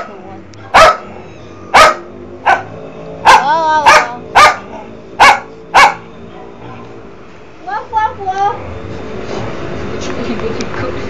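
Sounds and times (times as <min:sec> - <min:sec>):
dog barking sharply: 0:00.7 - 0:01.1, 0:01.7 - 0:02.7, 0:03.3 - 0:06.0.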